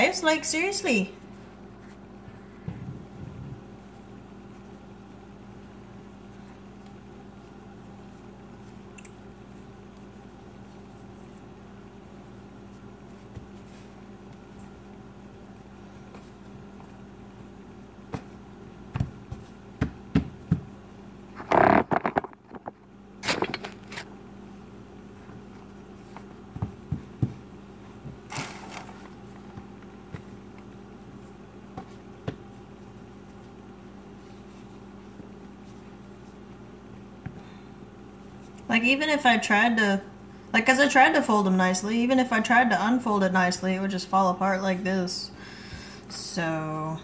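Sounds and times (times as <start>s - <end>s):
hands patting dough on countertop: 12.3s - 14.8s, 15.6s - 21.0s, 25.2s - 28.3s, 29.3s - 37.5s.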